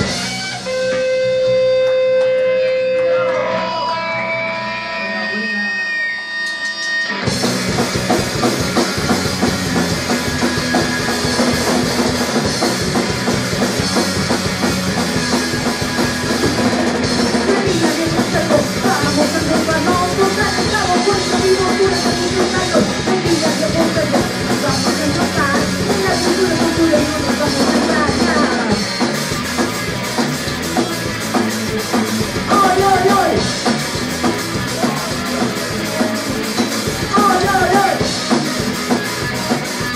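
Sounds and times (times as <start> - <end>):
punk rock band playing: 0.0 - 39.9
woman singing: 17.5 - 28.7.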